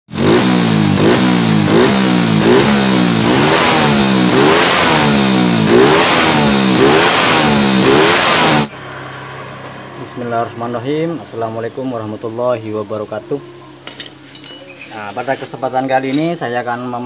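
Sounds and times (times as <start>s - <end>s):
moped engine revving: 0.1s - 11.7s.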